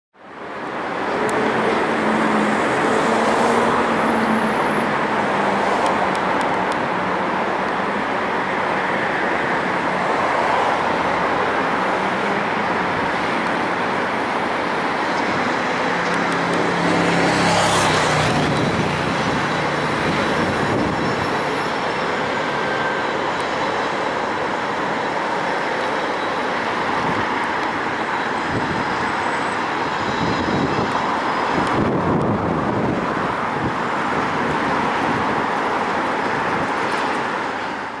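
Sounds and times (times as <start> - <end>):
city road traffic: 0.1 - 38.0
locomotive diesel engine drone: 10.8 - 25.9.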